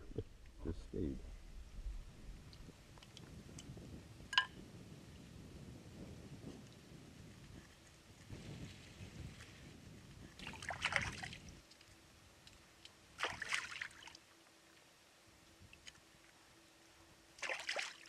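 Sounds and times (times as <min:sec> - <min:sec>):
water splashing and sloshing: 0:10.3 - 0:14.4, 0:17.4 - 0:18.0.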